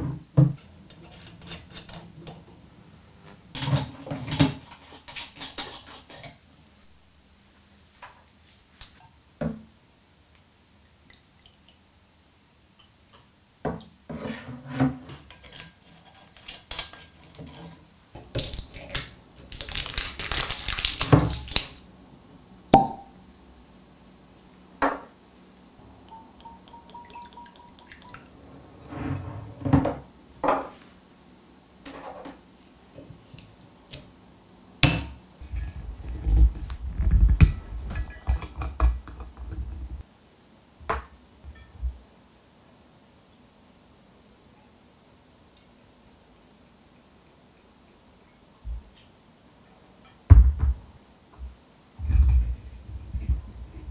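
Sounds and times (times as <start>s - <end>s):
glass bottles clinking: 26.1s - 28.2s.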